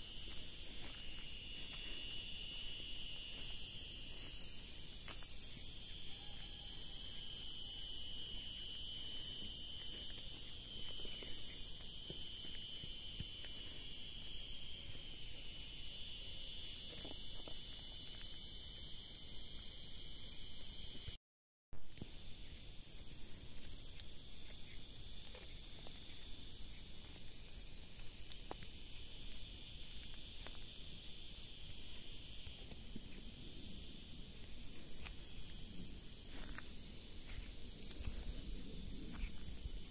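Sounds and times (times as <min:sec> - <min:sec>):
insects shrilling: 0:00.0 - 0:21.2.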